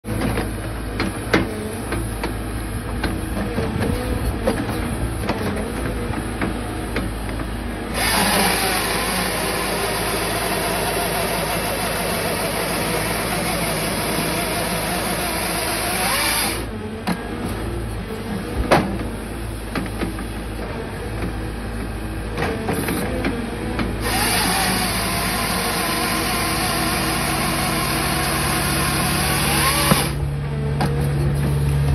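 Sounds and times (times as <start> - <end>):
diesel engine running: 0.0 - 31.9
chainsaw cutting tree trunk: 7.9 - 16.7, 24.0 - 30.2.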